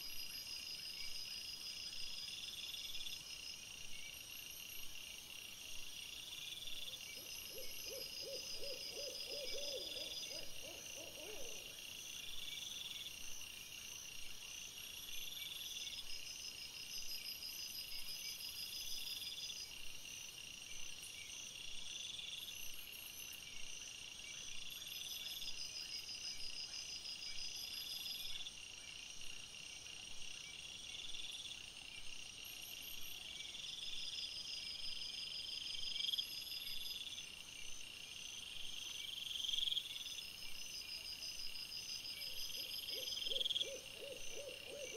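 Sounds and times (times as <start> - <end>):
insects trilling: 6.7 - 12.0, 38.7 - 44.9.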